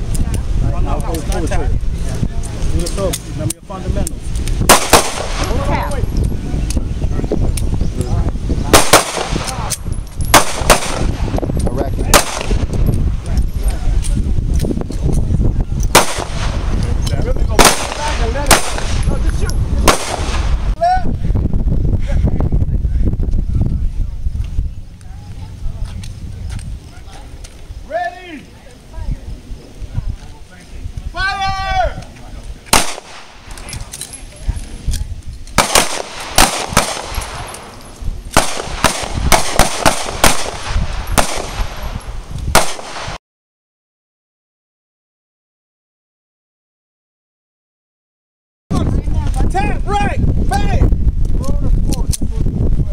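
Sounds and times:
distant gunshots: 4.7s - 5.6s, 8.7s - 9.6s, 10.3s - 11.2s, 12.1s - 12.7s, 15.9s - 16.7s, 17.6s - 19.0s, 19.8s - 20.7s, 32.7s - 33.5s, 35.6s - 37.7s, 38.3s - 41.8s, 42.5s - 43.2s
loud pistol shots: 4.7s - 5.7s, 8.7s - 11.4s, 12.1s - 12.7s, 15.9s - 16.7s, 17.5s - 19.1s, 19.8s - 20.7s, 32.7s - 33.6s, 35.6s - 37.7s, 38.3s - 43.2s.

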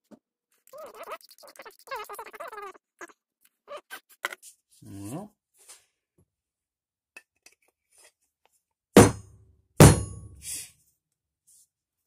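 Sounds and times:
sharp knocks with ringing: 9.0s - 10.4s.

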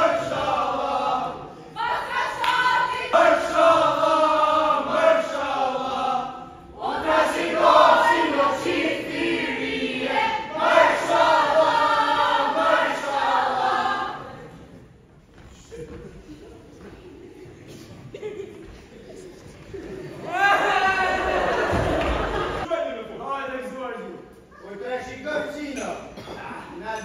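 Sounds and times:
young women singing together: 0.0s - 14.7s.

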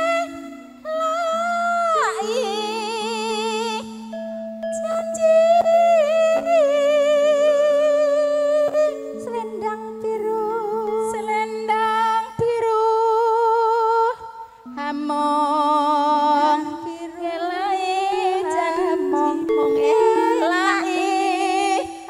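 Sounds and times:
sustained accompaniment chords: 0.0s - 6.6s, 17.5s - 22.0s
woman singing slow melody: 0.0s - 22.0s.

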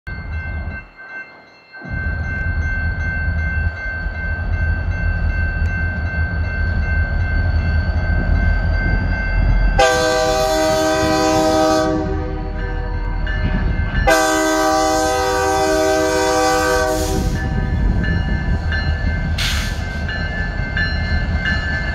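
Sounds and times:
diesel locomotive rumbling: 0.1s - 21.9s
locomotive air horn: 9.8s - 12.6s, 14.0s - 17.4s.

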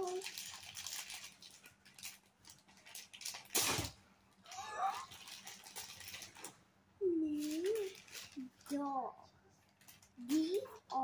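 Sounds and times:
plastic packaging crinkling and tearing: 0.0s - 6.6s, 7.2s - 9.0s.

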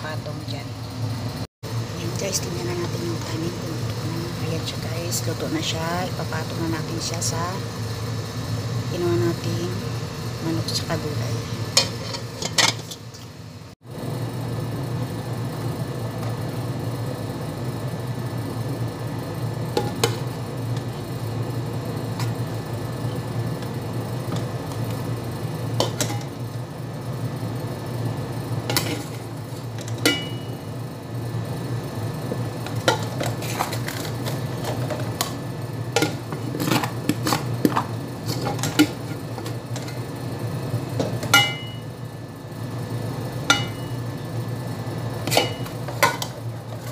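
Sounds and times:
steady low hum: 0.0s - 46.9s
spoon and pots clinking: 11.8s - 13.3s, 29.8s - 30.6s, 41.0s - 41.8s, 43.5s - 44.0s, 45.3s - 46.4s
pot metallic ring: 29.9s - 30.6s, 41.3s - 41.9s, 43.5s - 44.0s.

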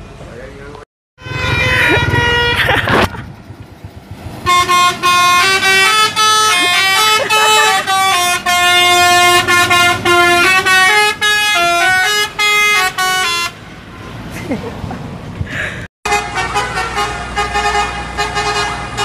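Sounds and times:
musical air horn playing a tune: 1.2s - 2.7s, 4.5s - 13.6s.

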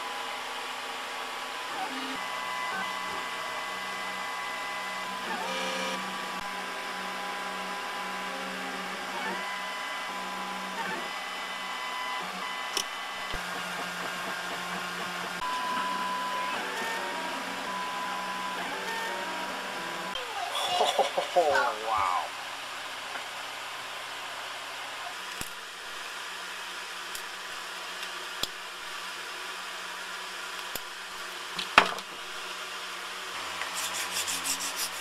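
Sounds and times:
stepper motors whining: 1.7s - 22.4s.

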